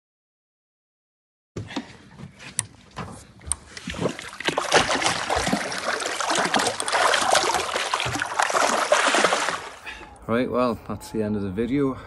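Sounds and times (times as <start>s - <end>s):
water splashing and trickling: 3.4s - 10.2s.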